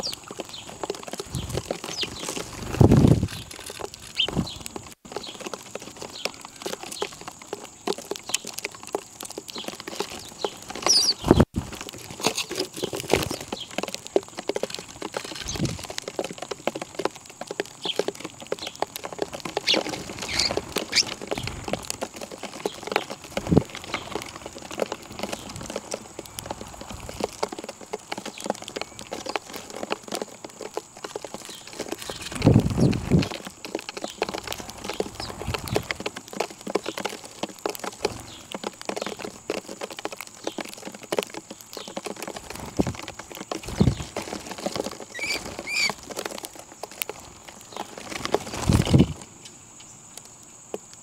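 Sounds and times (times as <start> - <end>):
beaks pecking seed: 0.0 - 51.0
bird chirps: 9.5 - 11.4, 19.6 - 21.6, 45.1 - 46.0.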